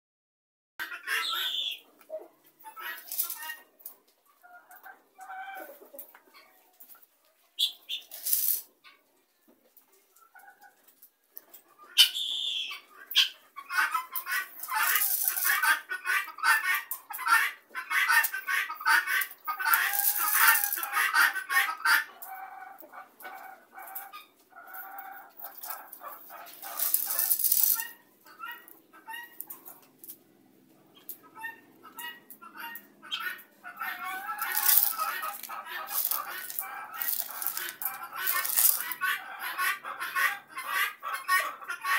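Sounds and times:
guineafowl chattering calls: 0.8 - 1.9, 11.8 - 22.6, 30.9 - 41.9.

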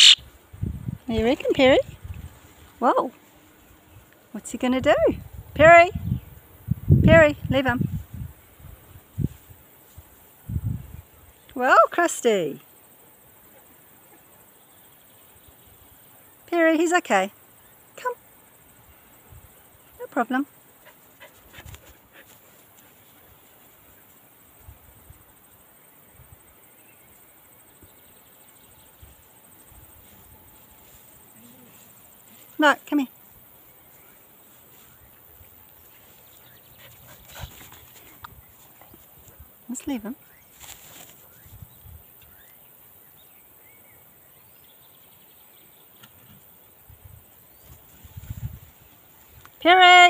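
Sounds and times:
faint bird chirps: 0.0 - 0.3, 41.2 - 46.1
insects trilling: 0.0 - 50.0.

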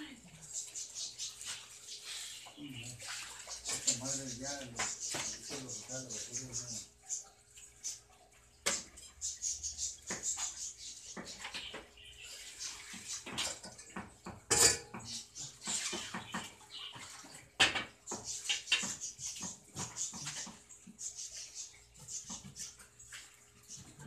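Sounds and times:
metal and dishes clattering: 3.2 - 5.9, 11.1 - 20.8.

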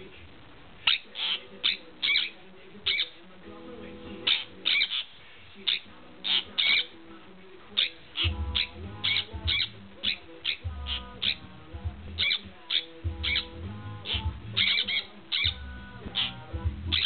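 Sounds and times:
parrot high-pitched calls: 0.8 - 3.2, 4.2 - 7.0, 7.8 - 11.4, 12.2 - 15.6.

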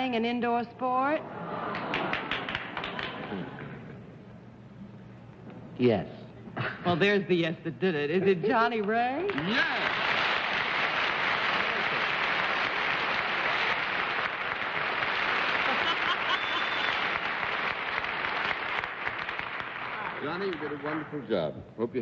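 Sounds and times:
audience applauding: 1.5 - 3.8, 9.2 - 21.3.

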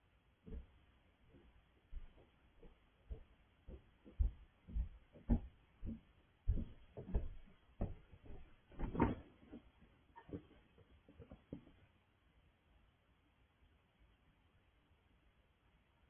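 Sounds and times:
dull thumps: 0.5 - 10.5.

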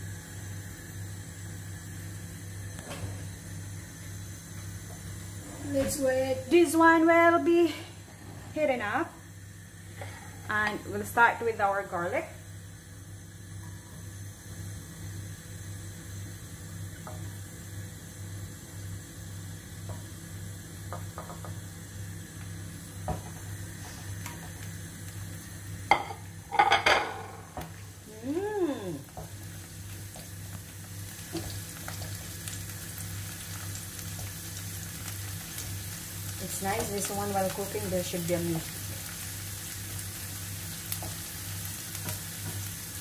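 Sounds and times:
low steady hum: 0.0 - 42.8
garlic sizzling in oil: 0.0 - 43.0
clatter of dishes: 25.9 - 27.4.

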